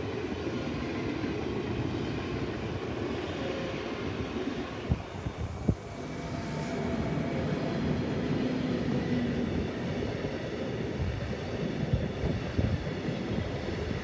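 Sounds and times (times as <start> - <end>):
freight train wheels rumbling: 0.0 - 14.0.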